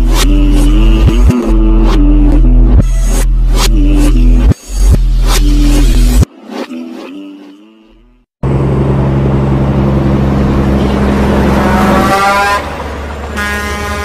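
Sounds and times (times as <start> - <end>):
truck engine and road noise: 0.0 - 14.0
truck air horn: 11.5 - 14.0.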